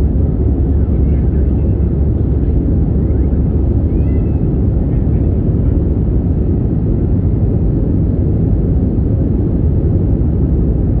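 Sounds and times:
airliner cabin engine rumble: 0.0 - 11.0.

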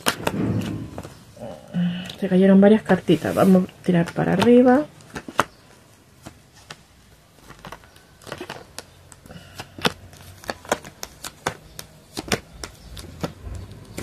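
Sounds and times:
cards tapping and flicking: 3.8 - 14.0.

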